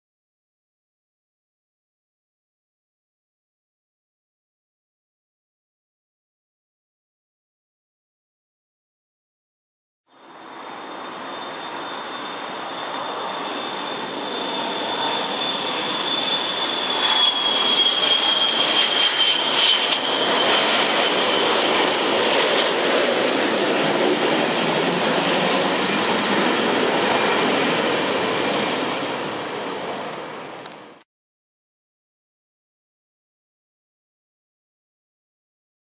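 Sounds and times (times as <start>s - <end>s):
jet engines passing overhead: 10.2s - 31.0s.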